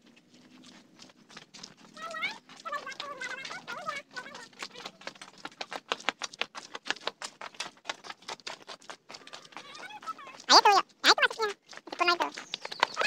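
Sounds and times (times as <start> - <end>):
quick footsteps on brick: 0.0 - 13.0.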